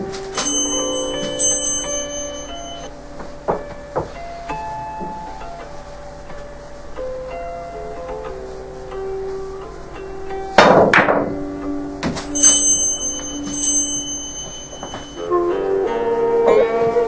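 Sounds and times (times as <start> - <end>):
plucked-string background music: 0.0 - 13.6, 15.2 - 17.0
billiard balls knocking: 10.6 - 11.4.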